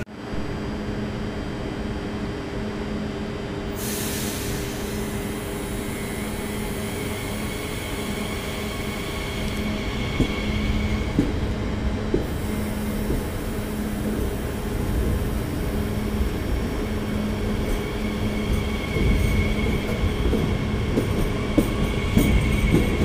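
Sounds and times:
electric train humming: 0.2s - 23.0s
hiss of air: 3.7s - 9.2s
train pulling away whine: 3.7s - 23.0s.

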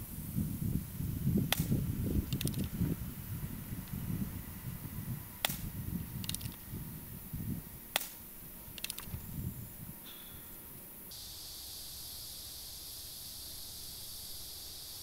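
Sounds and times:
air rifle cracks: 1.5s - 2.7s, 5.4s - 6.6s, 7.9s - 9.2s.

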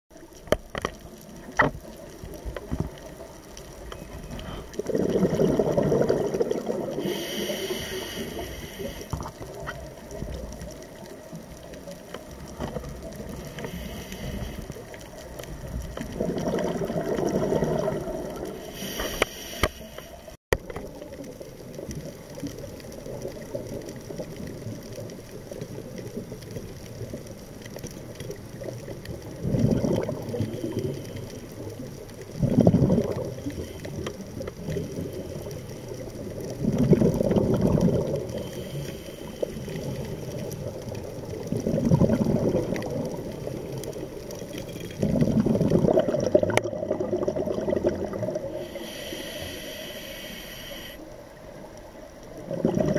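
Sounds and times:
low rush of water underwater: 0.1s - 52.9s
scuba regulator exhaled bubbles: 3.8s - 10.6s, 12.5s - 20.1s, 28.2s - 51.0s, 52.4s - 52.9s.

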